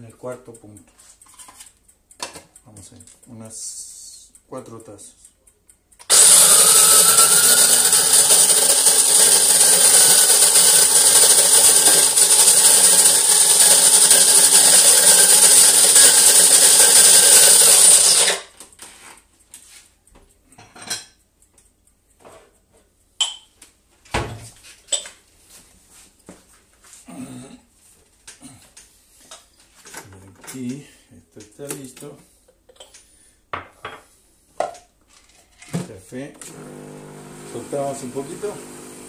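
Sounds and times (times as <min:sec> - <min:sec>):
electric coffee grinder whirring: 0:06.1 - 0:18.4, 0:36.4 - 0:39.0.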